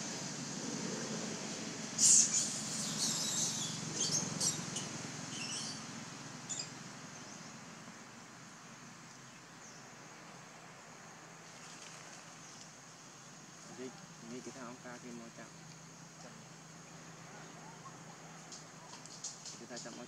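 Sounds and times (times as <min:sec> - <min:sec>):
animal chirping squeaks: 0:02.0 - 0:05.9.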